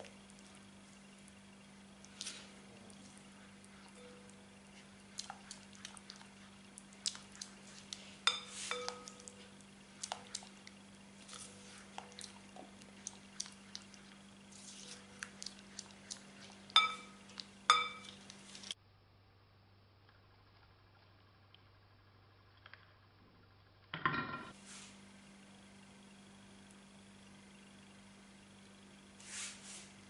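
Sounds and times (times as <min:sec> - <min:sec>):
spatula stirring thick chocolate: 0:02.0 - 0:18.8
spatula knocking glass bowl: 0:08.3 - 0:09.4, 0:16.8 - 0:18.2.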